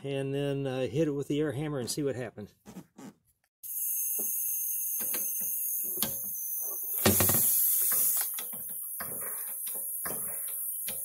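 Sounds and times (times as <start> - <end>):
gas torch flame hissing: 5.1 - 8.5.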